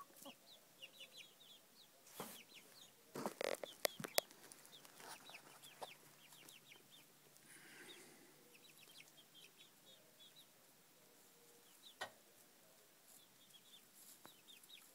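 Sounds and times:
chicks peeping: 0.0 - 14.9.

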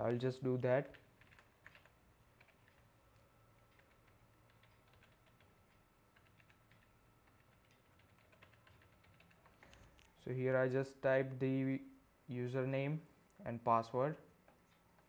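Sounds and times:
faint steady hum: 0.0 - 15.0
keyboard typing: 0.8 - 10.1.

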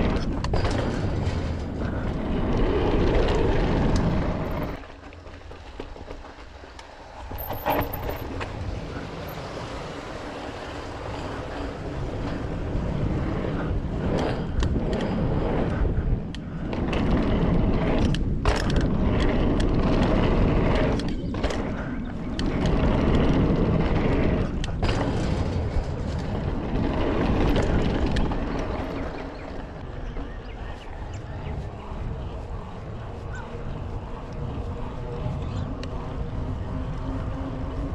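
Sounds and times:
bike tyres rolling over grate: 0.0 - 37.9
wind rushing over microphone: 0.0 - 37.9.

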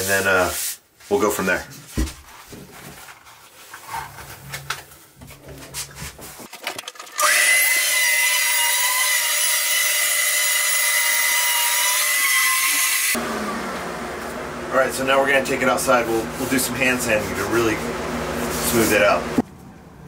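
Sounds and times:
handling knocks and rubbing: 1.5 - 6.5
orbital sander whining: 7.2 - 19.4.

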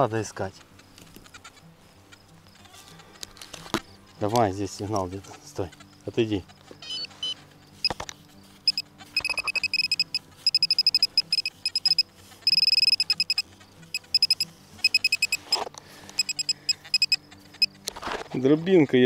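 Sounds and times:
metal detector pinpointer beeping: 6.8 - 8.0, 8.6 - 17.7.

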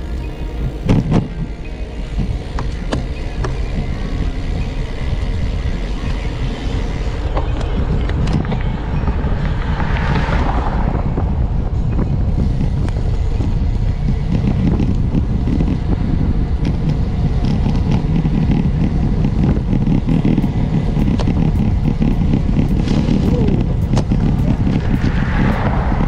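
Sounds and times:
wind buffeting microphone: 0.0 - 26.0
car passing close by: 9.0 - 11.8, 24.7 - 26.0.

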